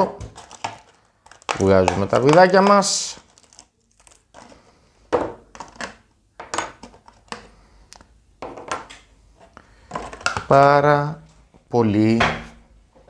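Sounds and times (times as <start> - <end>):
plastic parts clicking and clattering: 0.0 - 4.6, 5.5 - 8.0.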